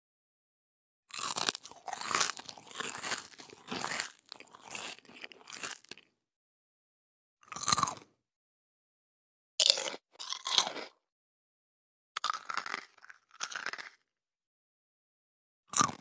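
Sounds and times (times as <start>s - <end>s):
person biting crunchy food: 1.1s - 6.1s, 7.5s - 8.1s, 9.6s - 10.9s, 12.2s - 14.0s, 15.7s - 16.0s.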